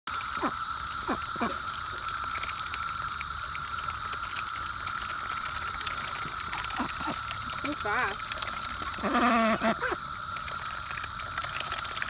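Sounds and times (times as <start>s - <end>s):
cicadas buzzing: 0.1s - 12.0s
ducks dabbling in mud: 0.2s - 12.0s
duck calls: 9.0s - 10.0s.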